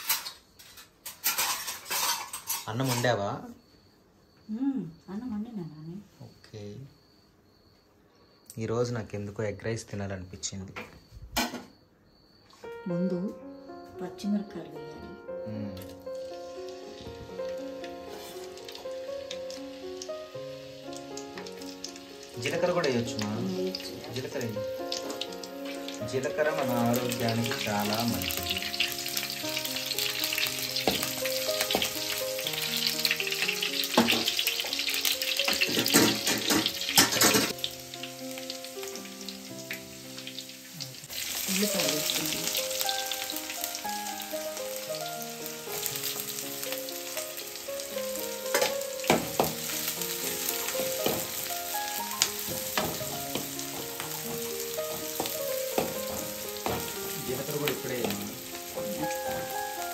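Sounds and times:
metal spoon scraping pan: 0:00.0 - 0:03.2
hot oil sizzling: 0:00.0 - 0:03.6, 0:15.5 - 0:59.9
soft background music: 0:12.6 - 0:59.9.

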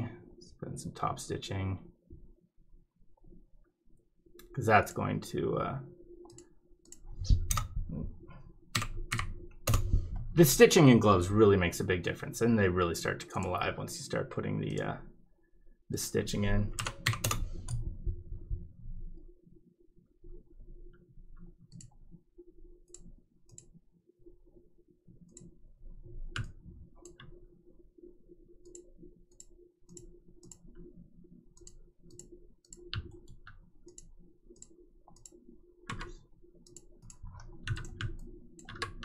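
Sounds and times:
faint steady hum: 0:00.0 - 0:39.0
computer mouse clicking: 0:06.2 - 0:07.8, 0:08.7 - 0:10.2, 0:16.8 - 0:17.9, 0:21.3 - 0:22.0, 0:22.8 - 0:23.8, 0:26.3 - 0:27.4, 0:28.6 - 0:30.9, 0:31.6 - 0:39.0.

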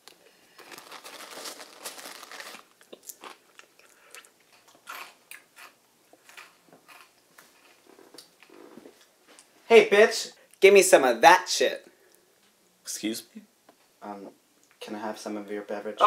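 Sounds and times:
crunching crackles: 0:00.0 - 0:08.5
plastic bag rustling: 0:00.5 - 0:03.4.

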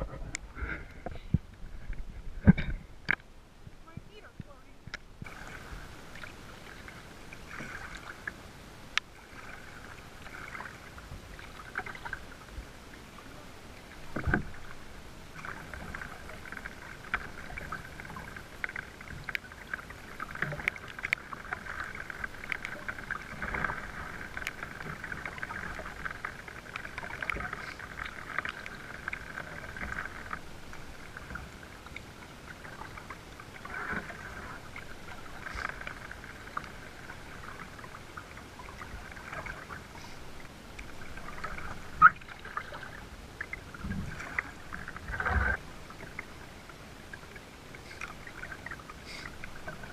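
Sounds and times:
water lapping against kayak hull: 0:00.0 - 0:49.9
small splashes and drips: 0:14.0 - 0:45.2.

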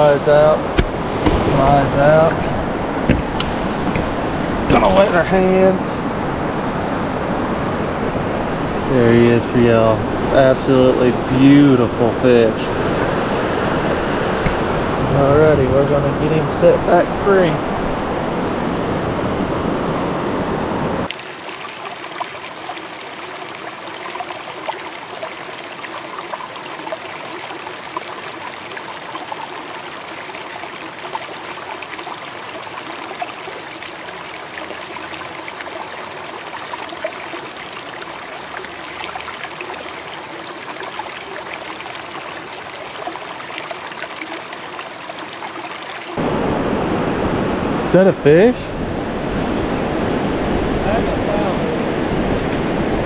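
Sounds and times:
river water trickling: 0:00.0 - 0:19.2, 0:21.0 - 0:46.2
small water splashes: 0:00.2 - 0:06.9, 0:21.1 - 0:46.2.

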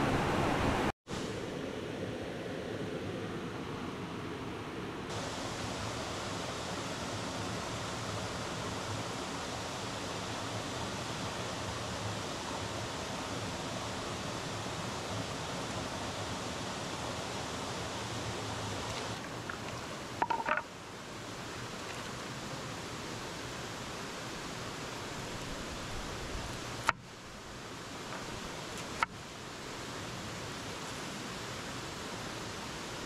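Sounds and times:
steady rushing hiss: 0:05.1 - 0:33.0
metallic clink: 0:20.2 - 0:20.6.

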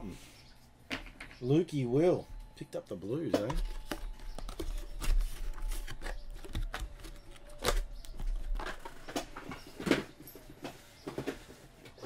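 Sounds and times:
trading cards being handled: 0:03.3 - 0:12.0.

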